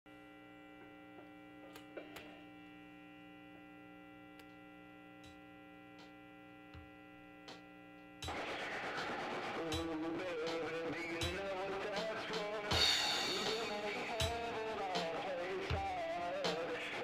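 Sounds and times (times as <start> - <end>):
faint electrical mains hum: 0.1 - 8.2.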